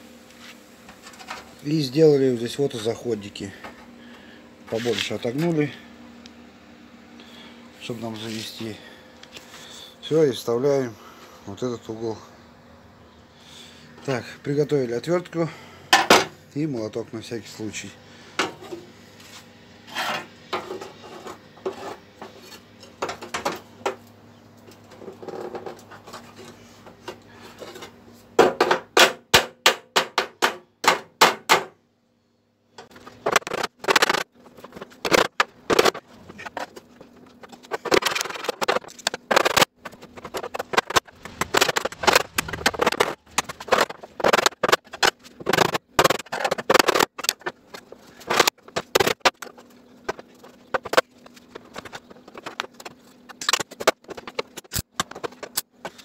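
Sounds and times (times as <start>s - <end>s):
knocks and clatter: 37.5s - 47.8s.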